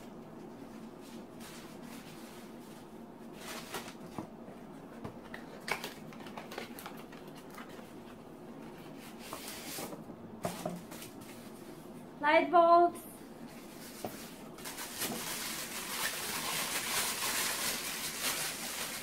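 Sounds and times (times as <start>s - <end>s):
faint steady hum: 0.0s - 19.0s
cardboard box packaging crinkling: 14.2s - 19.0s.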